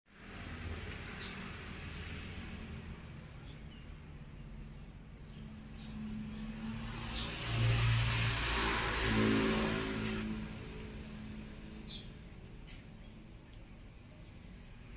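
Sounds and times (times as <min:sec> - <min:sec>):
engine low steady hum: 0:00.1 - 0:14.9.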